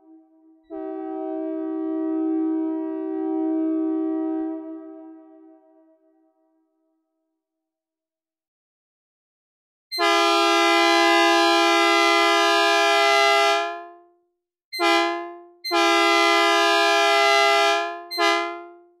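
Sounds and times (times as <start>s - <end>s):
two-note train horn blasts: 0.0s - 6.4s, 10.0s - 14.1s, 14.8s - 19.0s.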